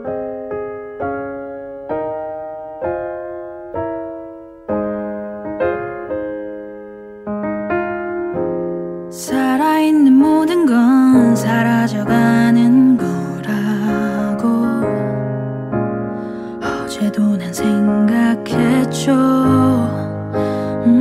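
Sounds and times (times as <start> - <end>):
electric piano slow chords: 0.0 - 21.0
person singing: 9.1 - 15.4, 16.5 - 21.0.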